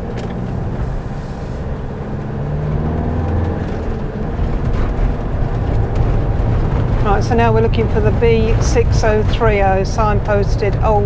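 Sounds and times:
motorhome engine accelerating: 0:00.0 - 0:11.0
road noise: 0:00.0 - 0:11.0.

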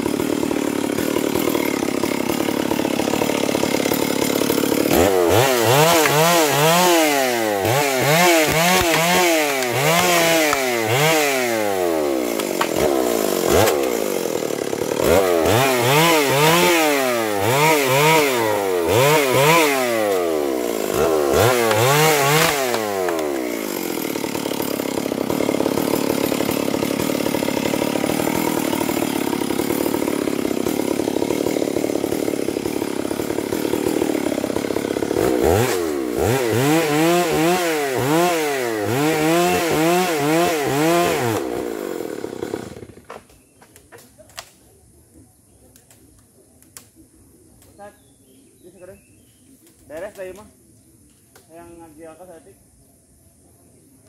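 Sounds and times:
chainsaw revving: 0:00.0 - 0:43.2.

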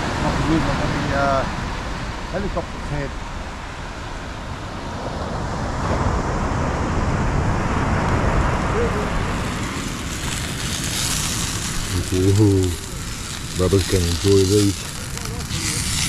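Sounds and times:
surf on the beach: 0:00.0 - 0:16.0
sausages sizzling in a pan: 0:09.2 - 0:16.0.

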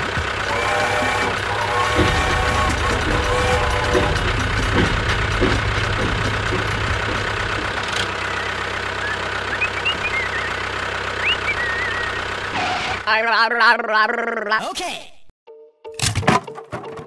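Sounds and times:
tractor engine running: 0:00.0 - 0:13.6.

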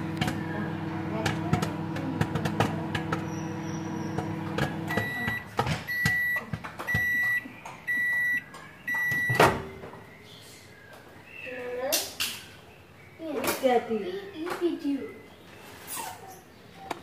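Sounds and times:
popcorn popping: 0:00.0 - 0:07.4
microwave oven humming: 0:00.0 - 0:09.5
long high beeps: 0:04.9 - 0:09.4.

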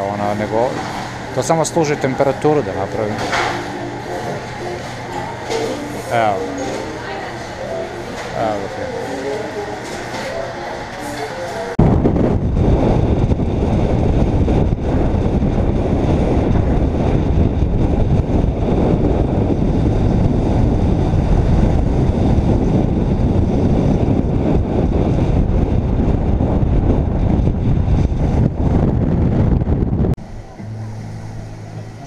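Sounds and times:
wind and road noise: 0:11.8 - 0:32.0.

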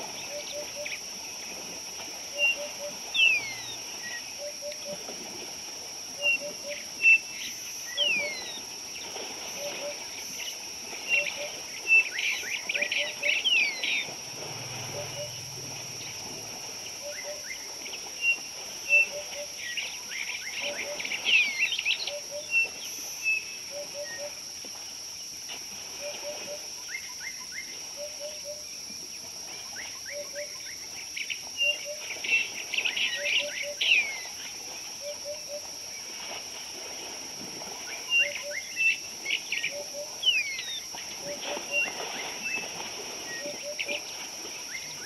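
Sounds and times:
bird cooing: 0:14.8 - 0:15.6.

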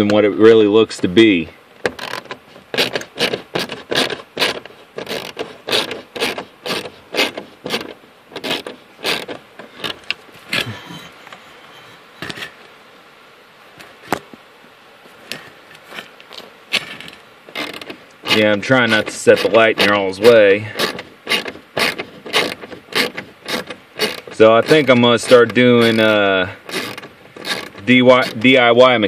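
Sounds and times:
hand ratchet clicking: 0:01.9 - 0:10.0, 0:17.5 - 0:28.6.

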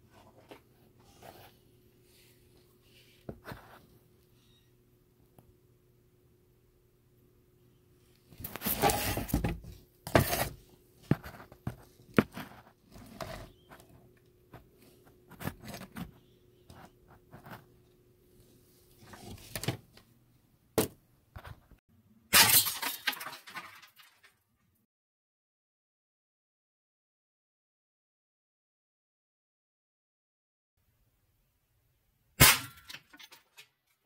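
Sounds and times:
rustling and scraping: 0:00.0 - 0:04.0, 0:08.3 - 0:20.0.

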